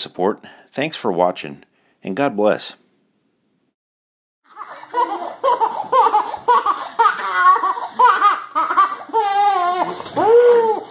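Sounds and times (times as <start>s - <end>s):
high-pitched laughter: 4.5s - 10.9s.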